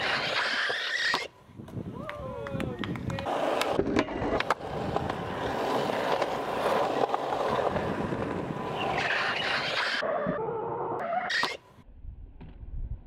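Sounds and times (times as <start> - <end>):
skateboard wheels rolling on concrete: 0.0 - 13.0
skateboard clacks: 1.1 - 9.8.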